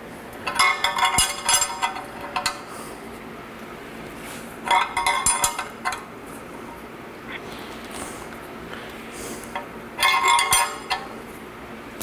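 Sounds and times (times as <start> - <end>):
wrench clinking on metal: 0.4 - 2.6, 4.7 - 6.0, 9.6 - 11.2.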